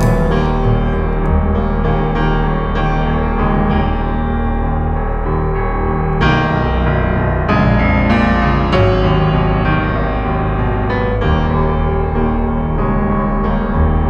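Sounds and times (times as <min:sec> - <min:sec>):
slow keyboard chords: 0:00.0 - 0:14.0.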